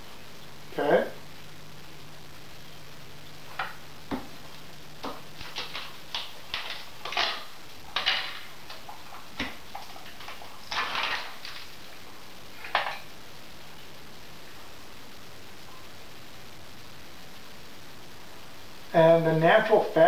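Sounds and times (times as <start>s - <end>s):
plastic rustling: 3.4s - 13.1s
utensils clicking and knocking: 5.0s - 11.5s.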